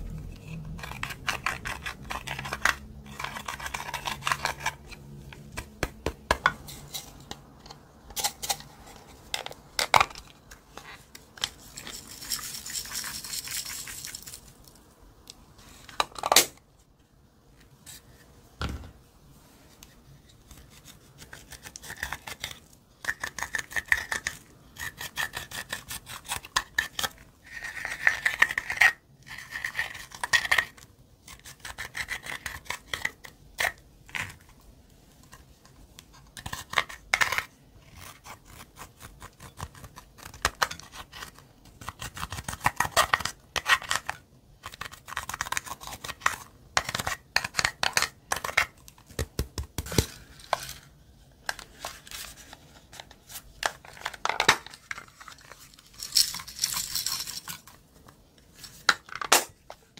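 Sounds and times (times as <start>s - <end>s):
metal tool scraping eyeshadow: 0.3s - 5.0s.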